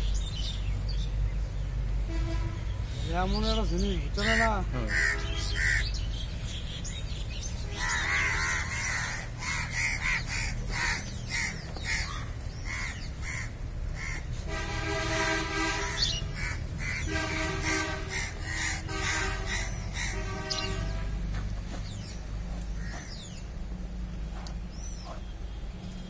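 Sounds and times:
crows cawing: 0:04.2 - 0:06.0, 0:07.7 - 0:14.4, 0:15.3 - 0:20.7, 0:22.7 - 0:23.3.

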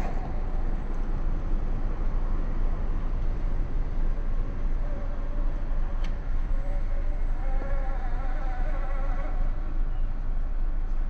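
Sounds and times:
steady low rumble: 0:00.0 - 0:07.4.

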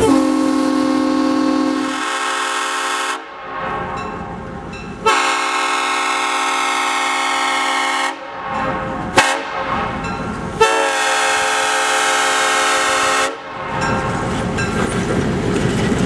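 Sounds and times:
locomotive air horn: 0:00.0 - 0:03.4, 0:05.0 - 0:09.9, 0:10.6 - 0:13.5
locomotive rumbling past: 0:00.0 - 0:16.0.

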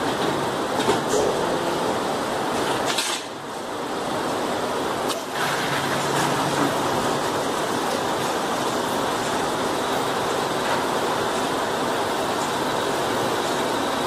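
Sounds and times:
machine rumbling and rattling: 0:05.2 - 0:09.4.

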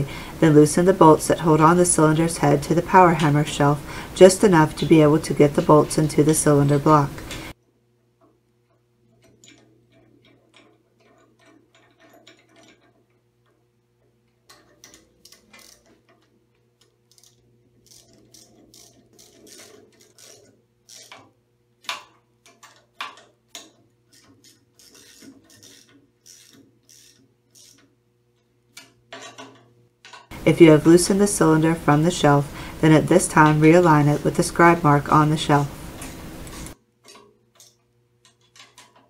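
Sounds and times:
faint steady hum: 0:00.0 - 0:38.8
hand ratchet clicking: 0:14.5 - 0:28.0.

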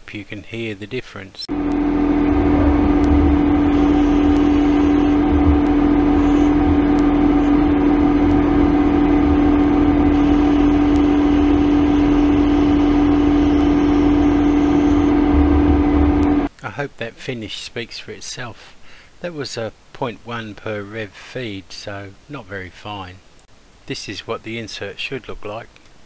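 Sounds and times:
lathe machine tone: 0:01.5 - 0:16.5
low rumble: 0:01.5 - 0:16.5.

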